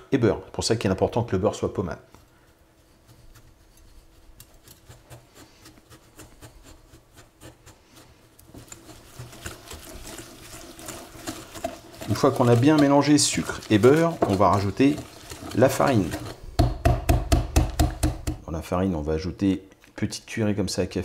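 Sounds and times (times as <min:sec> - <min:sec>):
whisk clicking against glass bowl: 0:08.5 - 0:18.4.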